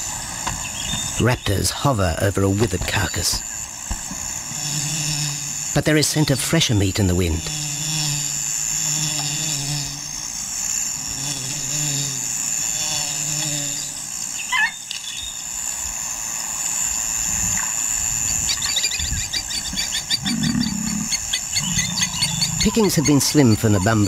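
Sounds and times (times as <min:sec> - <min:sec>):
high insect drone: 0:00.0 - 0:24.0
rapid repeated chirping: 0:13.7 - 0:15.7, 0:17.5 - 0:24.0.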